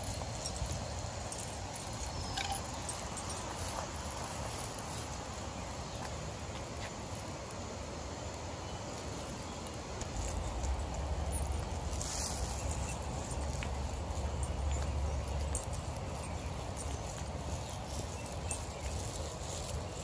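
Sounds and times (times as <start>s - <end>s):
steady hiss: 0.0s - 14.2s.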